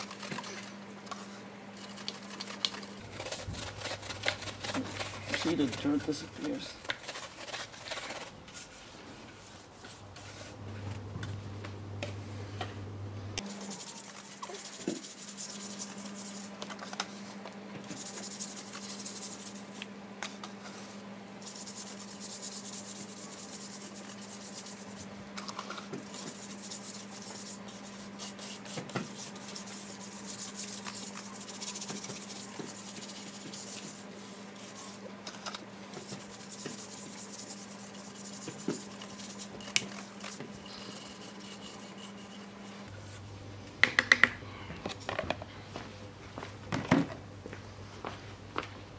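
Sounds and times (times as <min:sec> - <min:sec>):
brush scrubbing metal: 0:00.0 - 0:10.6, 0:13.5 - 0:17.0, 0:17.9 - 0:19.8, 0:21.4 - 0:42.9.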